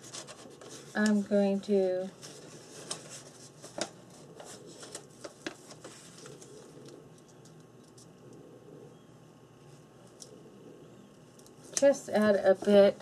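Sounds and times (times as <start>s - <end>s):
paper rustling and crinkling: 0.0s - 7.0s.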